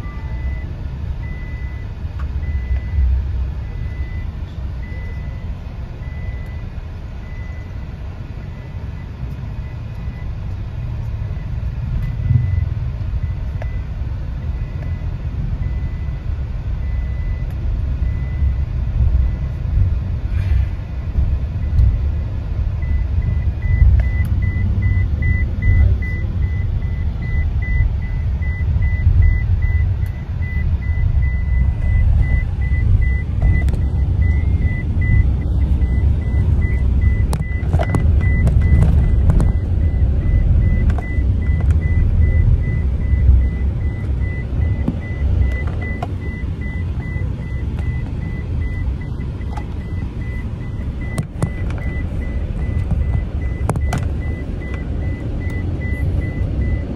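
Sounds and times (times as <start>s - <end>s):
high-pitched electronic beeping: 0.0s - 6.6s, 22.8s - 56.9s
van engine and road rumble: 0.0s - 56.9s.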